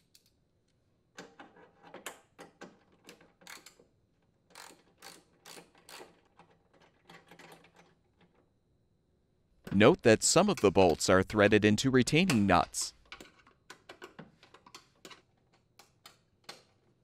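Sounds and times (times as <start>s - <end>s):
socket ratchet clicking: 4.5s - 6.2s.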